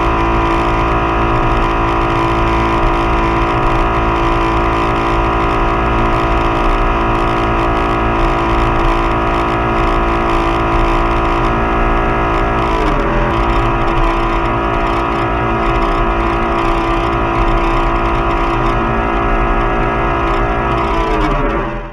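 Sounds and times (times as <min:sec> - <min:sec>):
motorboat engine running: 0:00.0 - 0:21.9.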